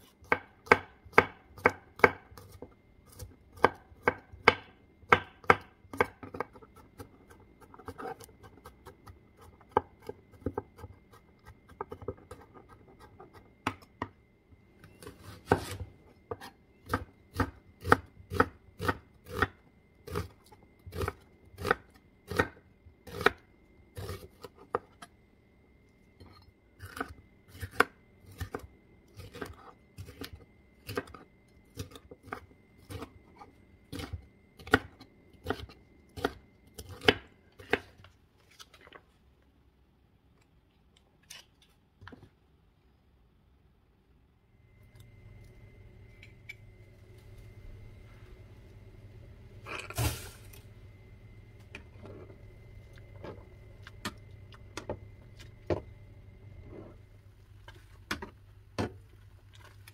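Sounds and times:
knife chopping on wooden board: 0:00.2 - 0:07.1, 0:15.0 - 0:20.3, 0:33.9 - 0:37.9.

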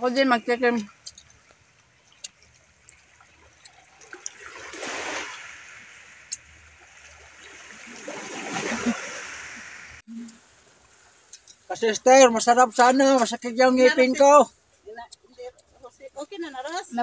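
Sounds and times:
waves washing onto rocky shore: 0:03.1 - 0:10.0.

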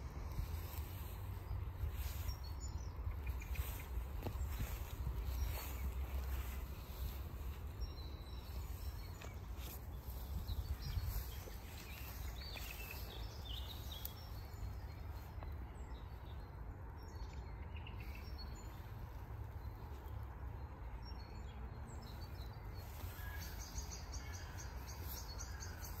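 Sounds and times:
steady low rumble: 0:00.0 - 0:17.4
birds chirping: 0:00.0 - 0:26.0.

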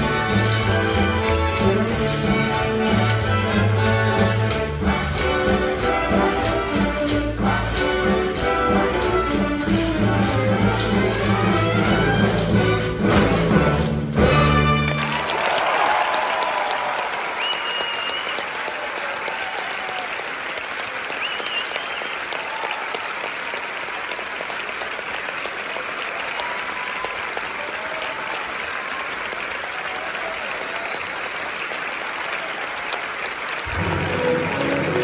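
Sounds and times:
audience applauding: 0:00.0 - 0:12.9, 0:14.2 - 0:35.0
faint cheers: 0:14.7 - 0:23.3, 0:25.7 - 0:31.3.

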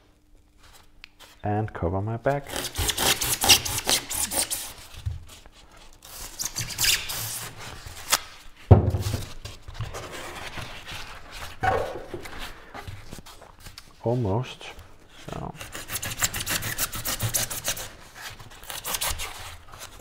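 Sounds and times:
knife sawing through foam: 0:02.4 - 0:04.9, 0:15.6 - 0:17.9
knock: 0:08.7 - 0:09.2.

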